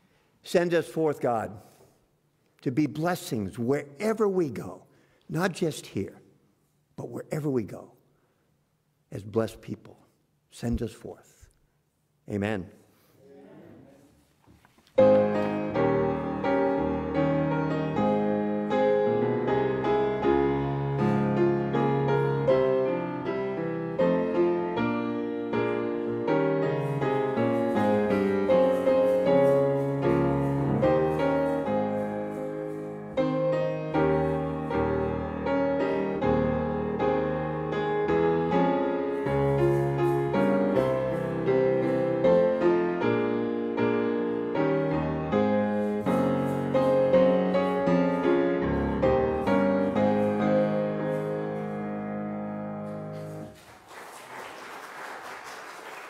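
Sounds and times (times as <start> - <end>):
grand piano piece: 13.8 - 56.0.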